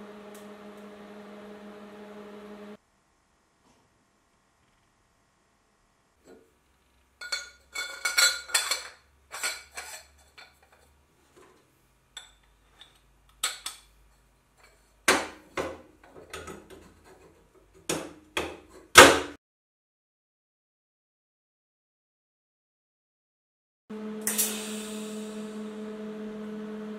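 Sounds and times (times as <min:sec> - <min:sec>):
metal tubes clinking and scraping: 0:07.2 - 0:11.0.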